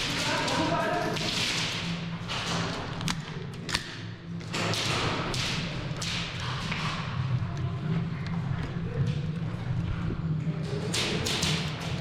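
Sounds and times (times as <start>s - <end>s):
sharp cracks: 0.0s - 6.6s.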